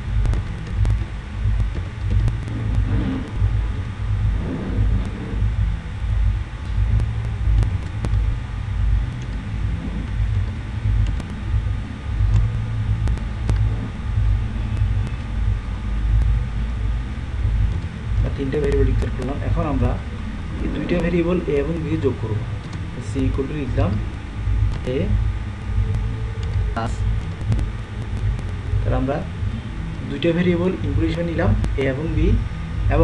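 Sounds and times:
low rumble: 0:00.0 - 0:33.0
keyboard clicks: 0:09.1 - 0:10.4.

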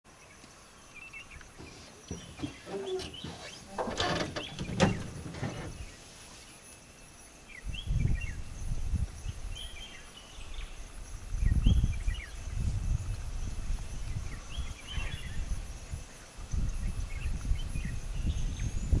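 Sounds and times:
small birds chirping: 0:00.1 - 0:19.0
rustling noise: 0:01.5 - 0:06.6.

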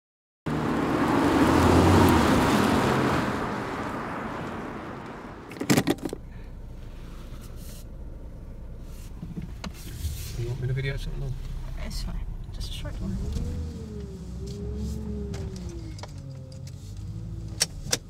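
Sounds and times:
car noise: 0:00.5 - 0:18.0
low steady rumble: 0:05.2 - 0:16.1.

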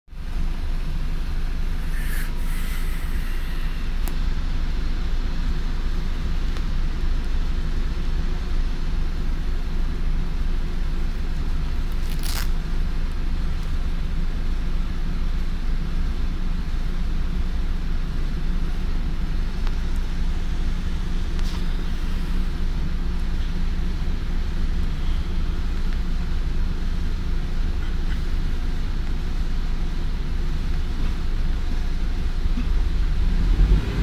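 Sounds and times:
bus diesel engine hum: 0:00.1 - 0:34.0
road noise: 0:00.1 - 0:34.0
short air hisses: 0:01.7 - 0:04.2.

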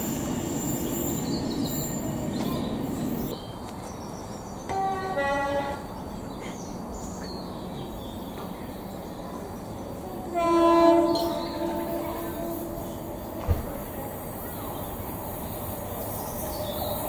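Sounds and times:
train horn blasts: 0:04.7 - 0:06.0, 0:10.3 - 0:13.5.

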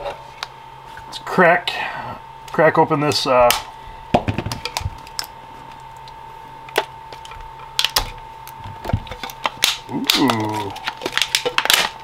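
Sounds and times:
plastic wrap crackling: 0:04.3 - 0:12.0.

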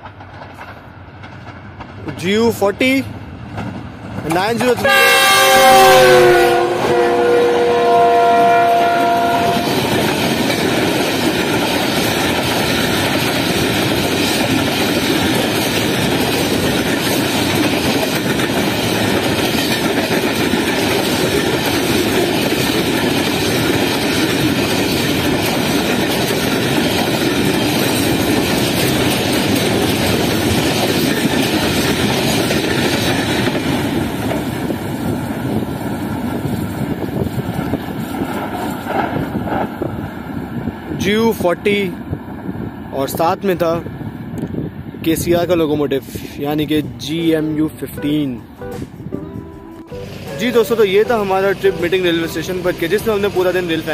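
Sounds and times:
freight wagons rumbling on rails: 0:00.0 - 0:53.9
locomotive horn: 0:04.8 - 0:10.0.

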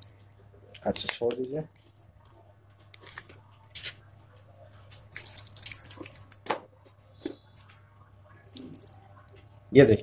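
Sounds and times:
tape peeling and rustling: 0:00.7 - 0:04.1, 0:04.8 - 0:06.6.

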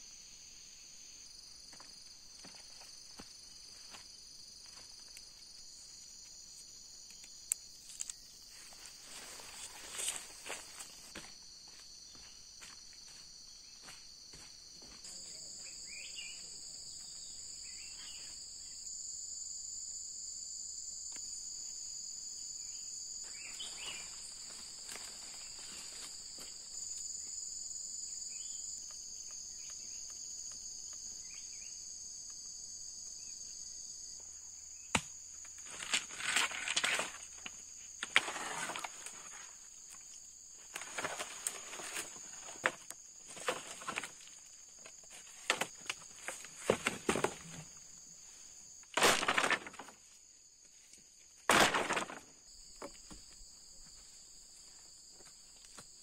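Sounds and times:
insect chorus: 0:00.0 - 0:56.0
footsteps on forest path: 0:01.7 - 0:05.7, 0:08.4 - 0:16.4, 0:23.2 - 0:26.9, 0:52.8 - 0:56.0
branches rustling and cracking: 0:23.5 - 0:26.4, 0:35.5 - 0:47.8, 0:48.9 - 0:50.1, 0:51.4 - 0:52.9.

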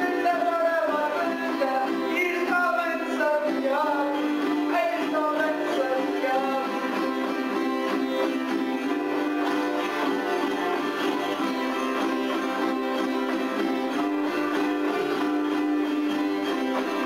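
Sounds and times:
man singing: 0:00.0 - 0:07.7
small string instrument: 0:00.0 - 0:17.0
strummed acoustic guitar: 0:00.0 - 0:17.0.

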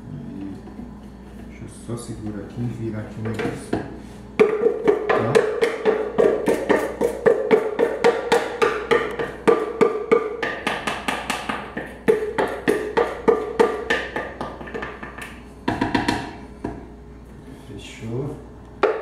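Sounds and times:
wooden spoon knocking plastic bowl: 0:03.2 - 0:16.8.

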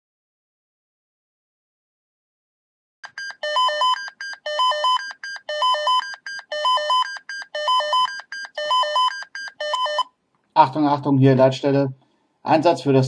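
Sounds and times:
electronic alert beeps: 0:03.0 - 0:10.0.

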